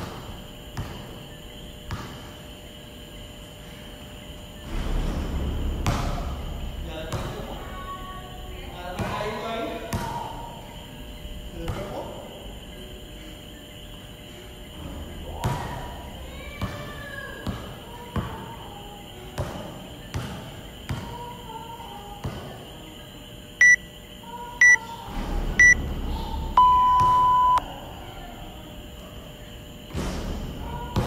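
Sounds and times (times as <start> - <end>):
basketball dribbling: 0.0 - 1.2, 1.8 - 2.4, 5.8 - 6.3, 7.1 - 7.5, 8.9 - 10.3, 16.6 - 18.5, 19.3 - 21.2
timer beeps: 23.6 - 23.9, 24.6 - 24.8, 25.6 - 25.8, 26.6 - 27.6.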